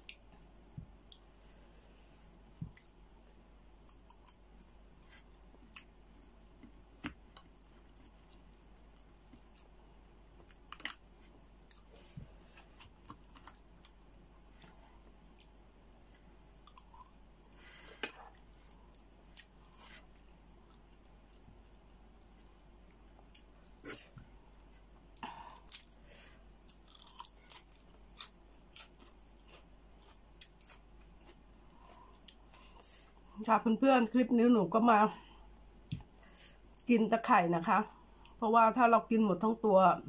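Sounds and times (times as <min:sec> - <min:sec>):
quiet chewing: 0:02.6 - 0:26.0, 0:26.6 - 0:33.2.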